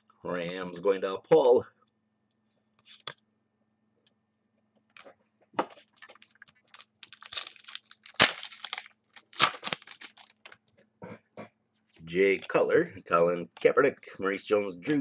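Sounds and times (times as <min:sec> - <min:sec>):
plastic wrapper crinkling: 0:05.7 - 0:10.7.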